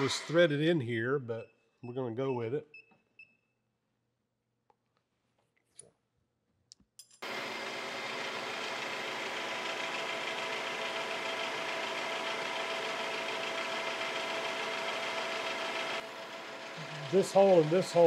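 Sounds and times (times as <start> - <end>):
milling machine drilling metal: 0.0 - 0.4.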